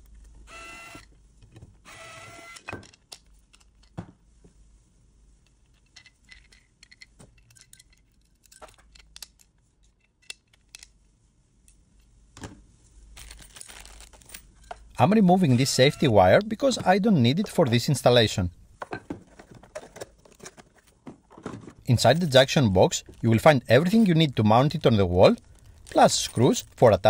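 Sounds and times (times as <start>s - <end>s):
squeaky screws turning: 15.3s - 16.5s.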